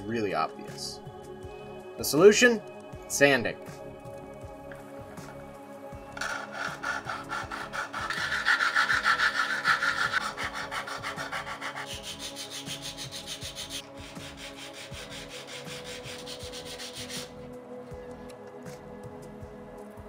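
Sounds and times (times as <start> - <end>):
plastic scraping on nail file: 6.2 - 13.8.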